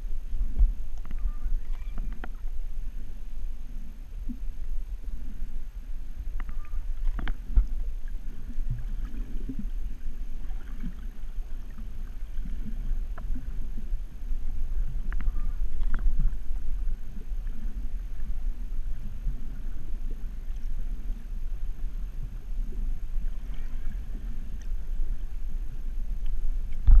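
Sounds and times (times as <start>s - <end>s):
underwater rumble of moving water: 0.0s - 27.0s
faint clicks: 0.5s - 2.5s, 6.3s - 7.8s, 15.0s - 16.4s, 24.5s - 24.8s, 26.2s - 27.0s.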